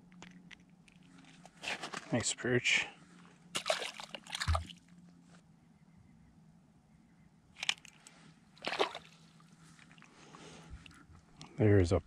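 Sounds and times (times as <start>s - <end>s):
ice slush crunching: 3.6s - 4.6s, 8.6s - 10.1s.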